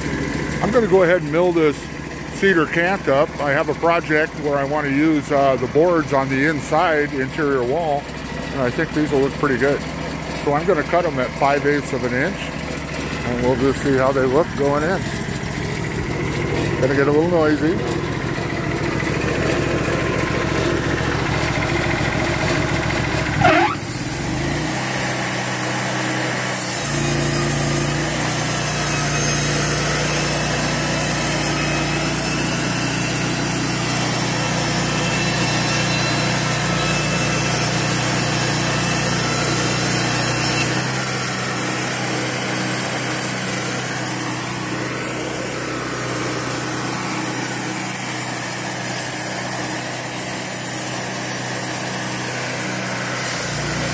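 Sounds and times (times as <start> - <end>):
band saw cutting wood: 0.0 - 53.9
sawmill engine revving: 0.0 - 53.9.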